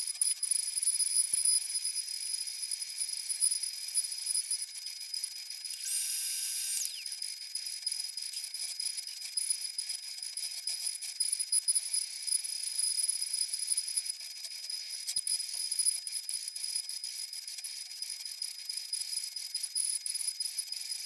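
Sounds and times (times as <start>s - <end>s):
router spindle whine: 5.7s - 7.2s.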